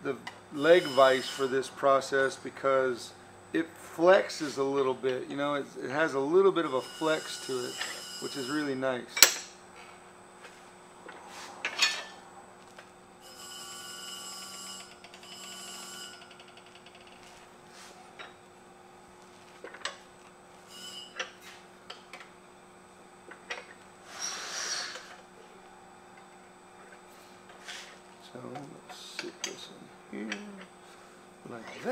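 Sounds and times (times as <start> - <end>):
telephone ringing: 13.3 - 16.4.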